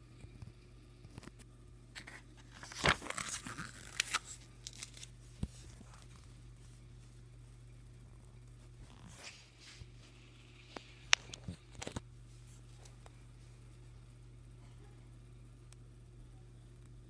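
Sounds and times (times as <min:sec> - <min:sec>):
paper pages rustling: 0:02.0 - 0:06.7, 0:08.8 - 0:10.1, 0:10.7 - 0:13.0.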